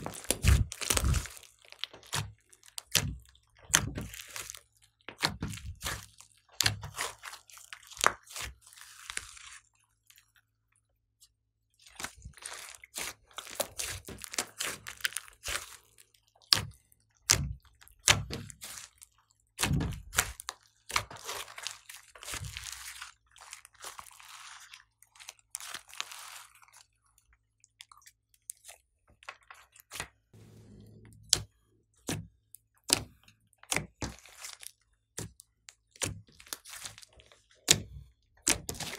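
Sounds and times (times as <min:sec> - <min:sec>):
slime popping and crackling: 0:00.0 - 0:09.6, 0:12.0 - 0:19.0, 0:19.6 - 0:24.4.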